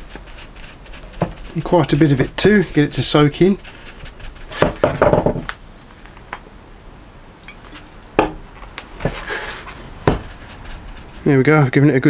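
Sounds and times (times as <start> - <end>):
hammer knocking on wooden bench: 4.6 - 5.5, 8.2 - 8.4, 10.0 - 10.3.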